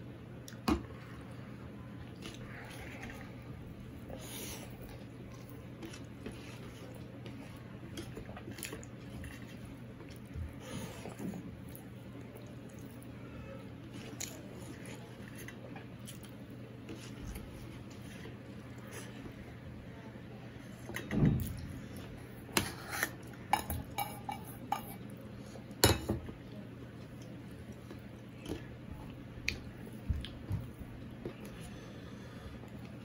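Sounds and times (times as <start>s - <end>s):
chewing and mouth smacks: 29.4s - 31.5s.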